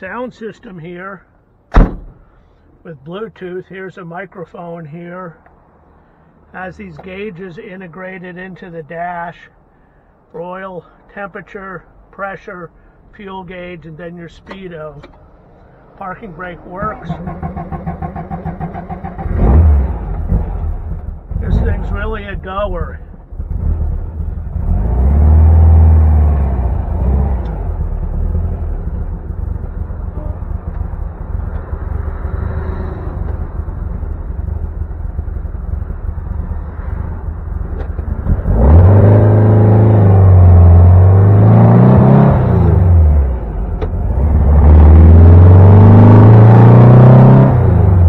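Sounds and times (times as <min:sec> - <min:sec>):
car engine revving and accelerating: 0:17.1 - 0:22.0, 0:23.4 - 0:29.7, 0:31.5 - 0:34.6, 0:36.2 - 0:48.0.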